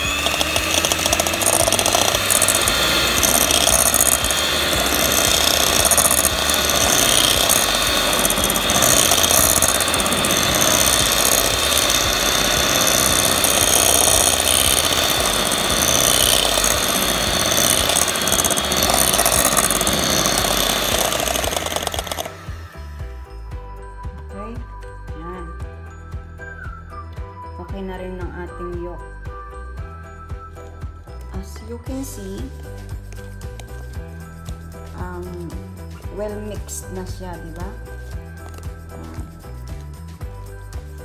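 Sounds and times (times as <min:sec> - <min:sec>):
electric hand mixer whipping: 0:00.0 - 0:23.7.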